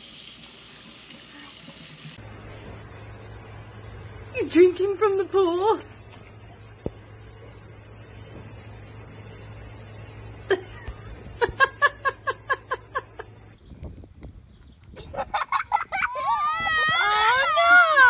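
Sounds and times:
background hiss: 0:02.1 - 0:13.6
high-pitched laughter: 0:10.5 - 0:13.4, 0:15.0 - 0:18.0.

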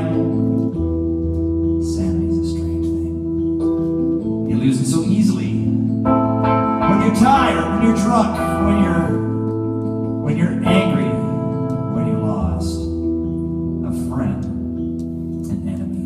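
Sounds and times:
electronic keyboard chords: 0:00.0 - 0:16.0
wavering melody line: 0:04.2 - 0:13.8.

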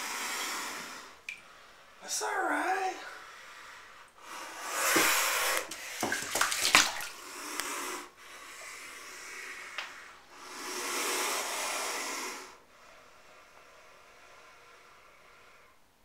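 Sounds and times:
alligator hissing: 0:00.0 - 0:01.2, 0:04.2 - 0:06.1, 0:06.9 - 0:15.8.

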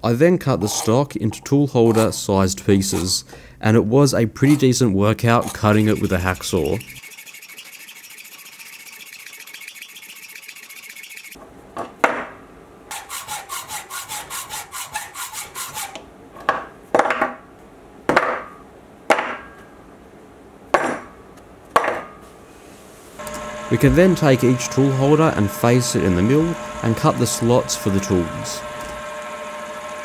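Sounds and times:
hacksaw cutting steel: 0:05.4 - 0:11.4, 0:12.9 - 0:16.0, 0:23.2 - 0:29.3.

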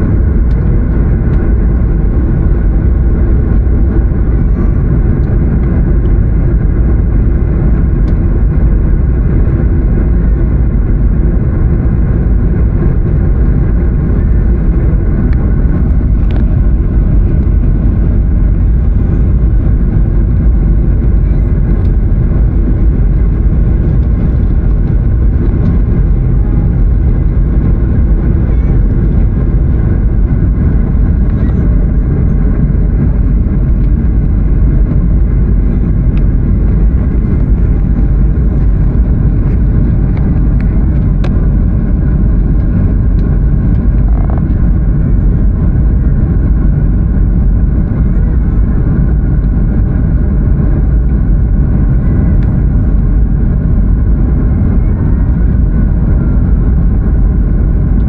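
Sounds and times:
airliner cabin engine drone: 0:00.0 - 0:58.0.

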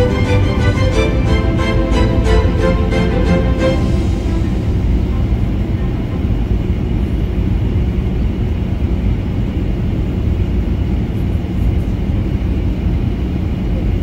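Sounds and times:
jet engine rumble: 0:03.8 - 0:14.0.

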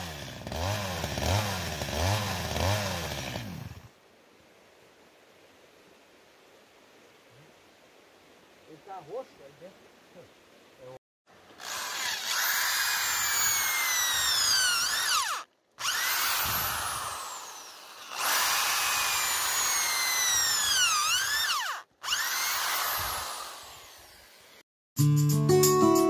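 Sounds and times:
electric drill boring into wood: 0:11.5 - 0:24.6.

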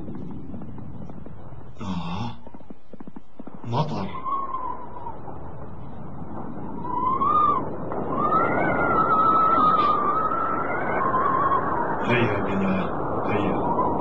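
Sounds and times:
heavy rain: 0:00.0 - 0:14.0
high wavering wail: 0:04.0 - 0:05.3, 0:06.6 - 0:12.1.

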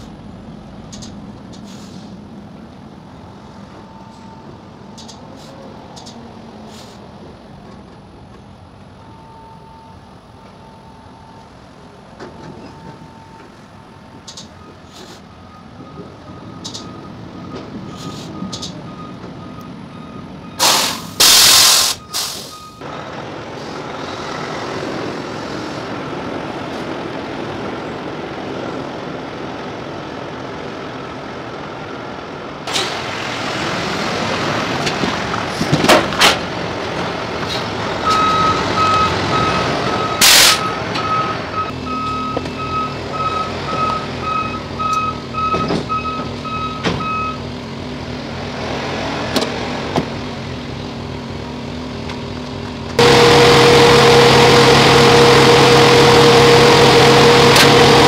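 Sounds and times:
air brakes hissing: 0:01.5 - 0:02.2, 0:05.0 - 0:07.1, 0:14.3 - 0:15.4, 0:17.8 - 0:18.8, 0:20.6 - 0:22.8, 0:40.2 - 0:40.9
reversing alarm beeping: 0:03.7 - 0:04.6, 0:09.0 - 0:11.6, 0:12.2 - 0:22.8, 0:38.0 - 0:47.4, 0:53.0 - 0:58.0
truck diesel engine running: 0:10.0 - 0:58.0.

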